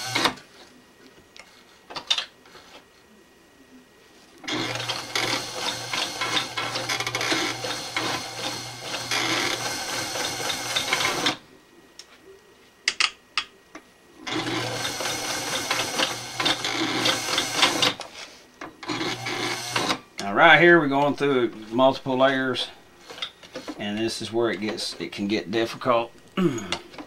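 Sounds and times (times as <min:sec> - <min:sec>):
sewing machine stitching: 0:00.0 - 0:00.4, 0:04.4 - 0:11.4, 0:14.2 - 0:18.0, 0:18.8 - 0:20.0.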